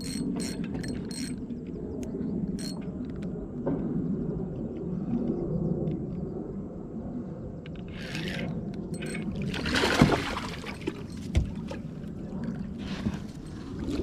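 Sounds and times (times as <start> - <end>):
water splashing: 9.0 - 12.7.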